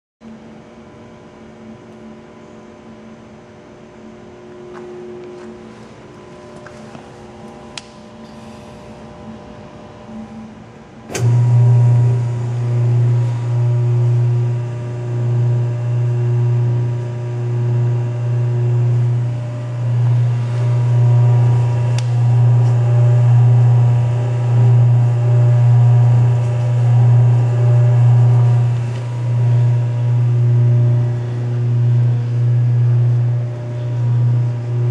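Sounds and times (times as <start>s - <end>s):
faint hum: 0.2s - 34.9s
loud low blender motor hum: 10.1s - 34.9s
blender switch click: 11.1s - 11.6s, 21.9s - 22.8s.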